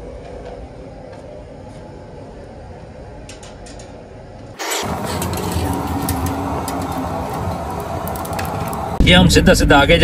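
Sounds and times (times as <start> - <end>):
gas burner rumble: 3.0 - 10.0.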